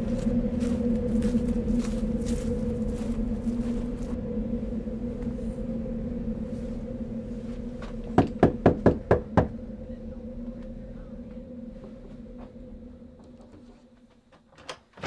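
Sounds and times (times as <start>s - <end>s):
knuckles knocking on door: 8.2s - 9.6s.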